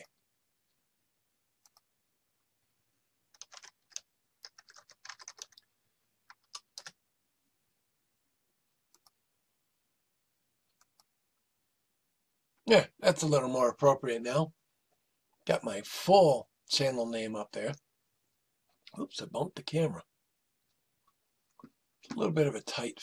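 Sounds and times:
typing on a computer keyboard: 3.3 - 7.0.

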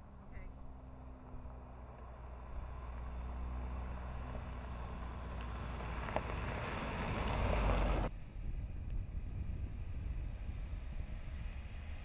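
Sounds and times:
tyres crunching on gravel: 5.2 - 8.1.

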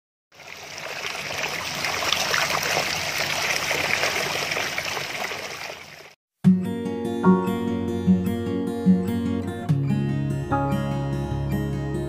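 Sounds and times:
water babbling: 0.3 - 6.2.

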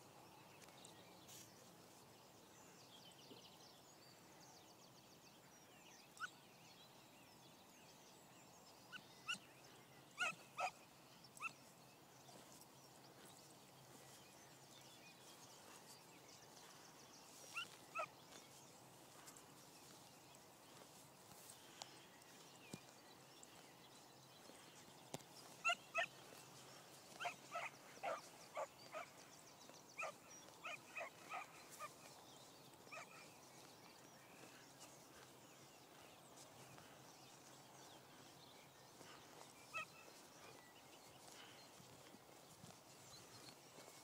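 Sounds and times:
puppy yelping: 10.2 - 10.7, 25.6 - 26.1, 27.2 - 29.0, 30.0 - 31.4.

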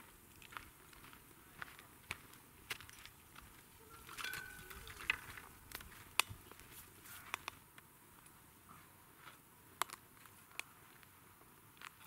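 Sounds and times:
wood fire crackling: 0.0 - 8.4.

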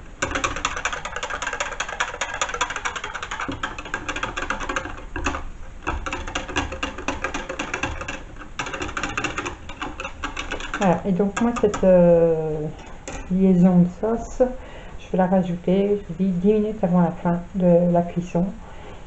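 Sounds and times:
whisk clattering in plastic jug: 0.0 - 12.0, 12.7 - 13.4.

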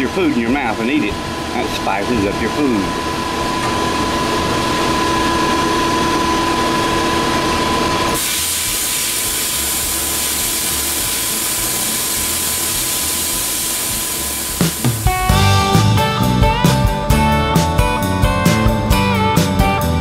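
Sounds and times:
sandblast gun hissing: 8.2 - 15.3.

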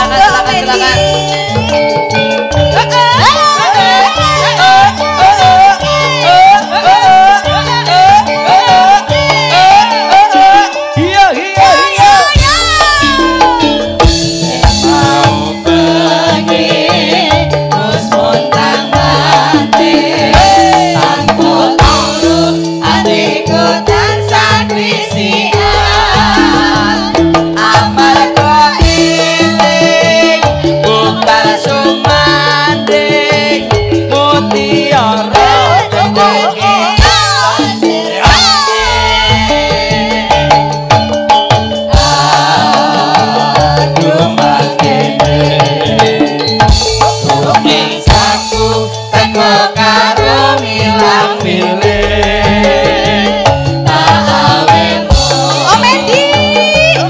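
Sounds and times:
person singing: 0.0 - 40.7, 41.9 - 46.4, 47.2 - 57.0
drum beat: 0.0 - 57.0
keyboard melody: 0.0 - 57.0
held bass notes: 51.8 - 57.0.

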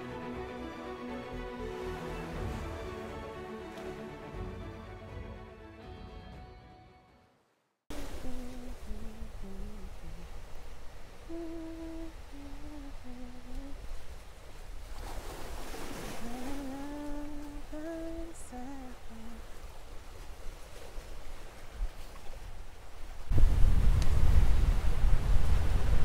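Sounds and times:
person humming: 7.9 - 10.6, 11.2 - 13.9, 16.2 - 19.5
small waves on rocky shore: 7.9 - 26.0.

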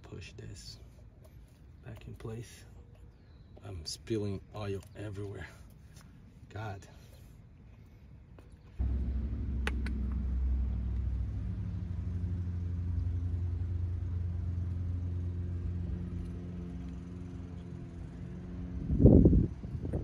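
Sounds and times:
loud thump: 8.8 - 12.6
vehicle engine idling: 8.8 - 20.0.

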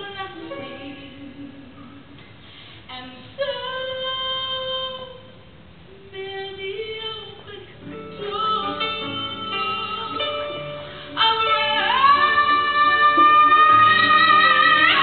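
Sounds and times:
woman singing worship song: 0.0 - 5.4, 6.1 - 15.0.

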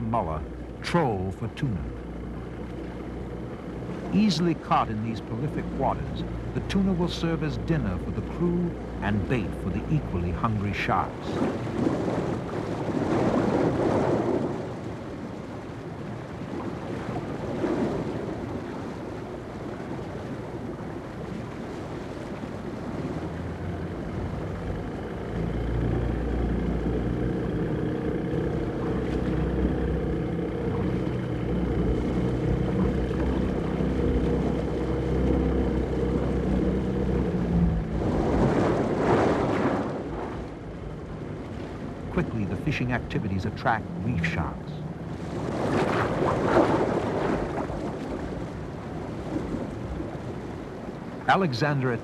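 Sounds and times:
motorboat engine hum: 0.0 - 52.0
water noise: 0.0 - 52.0
wind: 0.0 - 52.0.

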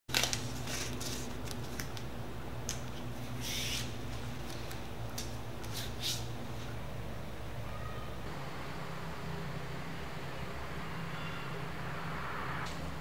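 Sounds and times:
label strip crinkling and rubbing: 0.1 - 6.3
steady low hum: 0.1 - 13.0.

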